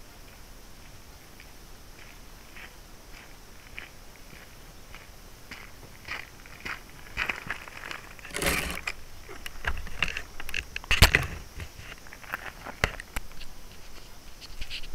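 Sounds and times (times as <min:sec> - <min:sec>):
rustling scrape on gravel: 0:06.6 - 0:10.4.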